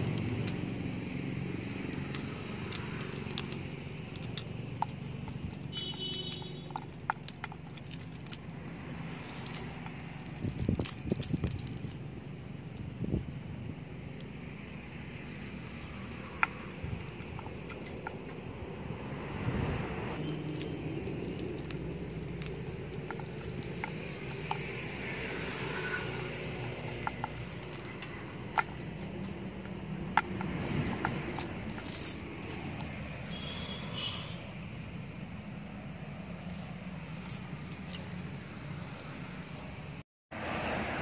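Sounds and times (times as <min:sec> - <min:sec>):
sharp metallic clicks: 0:00.0 - 0:13.3.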